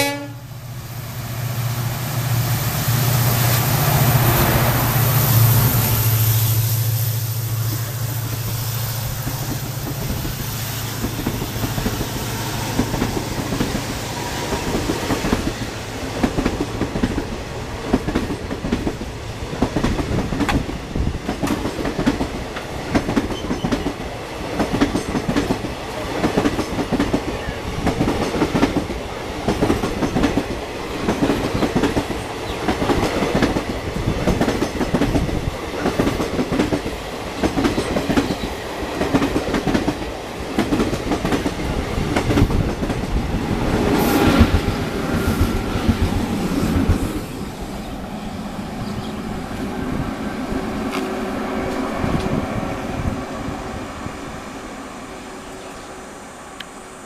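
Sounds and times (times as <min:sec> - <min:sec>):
train wheels clattering over rail joints: 0:09.1 - 0:47.2.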